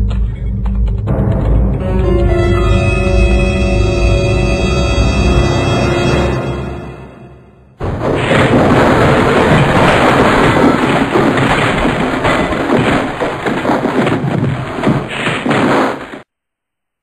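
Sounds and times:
crashing and smashing: 0:07.8 - 0:16.2.

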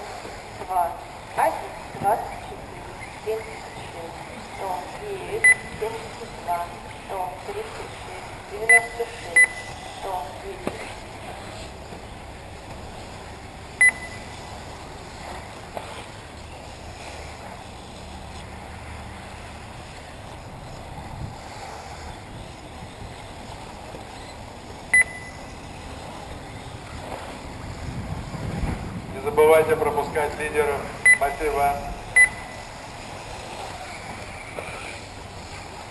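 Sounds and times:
steady outdoor hiss: 0:00.0 - 0:35.9
short electronic beeps: 0:05.3 - 0:06.0, 0:08.6 - 0:09.9, 0:13.8 - 0:14.4, 0:24.2 - 0:25.6, 0:31.0 - 0:32.8.

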